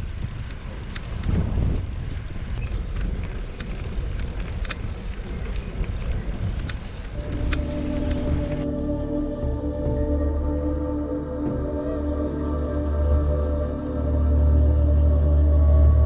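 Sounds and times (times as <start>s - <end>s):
wind buffeting microphone: 0.0s - 12.4s
sharp ticks: 0.4s - 1.5s, 2.6s - 8.7s
music: 7.2s - 16.0s.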